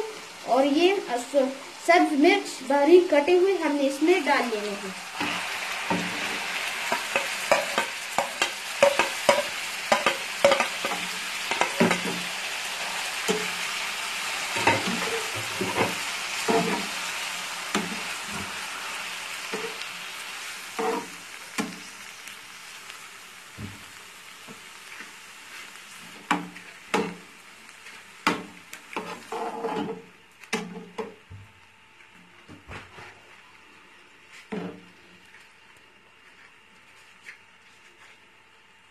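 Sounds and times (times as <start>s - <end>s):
tomatoes sizzling in hot oil: 0.0s - 31.2s
wooden spatula knocking on pan: 6.9s - 12.2s, 26.3s - 27.2s, 28.2s - 29.1s.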